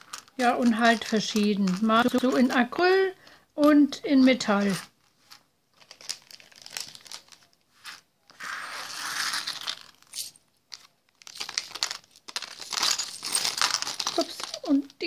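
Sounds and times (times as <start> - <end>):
plastic bag crinkling: 0.0 - 2.9, 4.4 - 7.6, 9.2 - 15.0
small charms clinking: 11.3 - 15.0.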